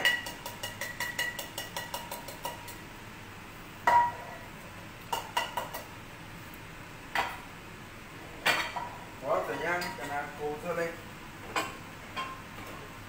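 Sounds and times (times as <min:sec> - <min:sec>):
utensil clinking on a steel saucepan: 0:00.0 - 0:02.8.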